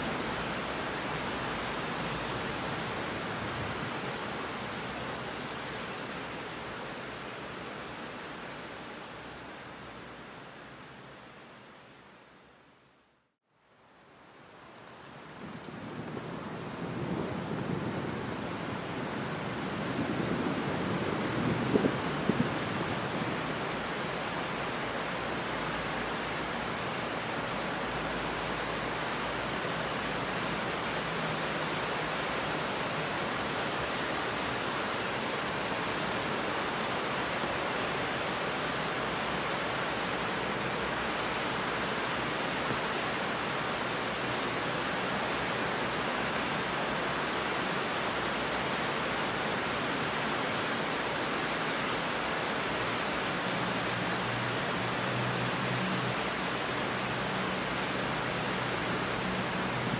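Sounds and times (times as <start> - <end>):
heavy rain falling: 0.0 - 12.1, 13.6 - 59.9.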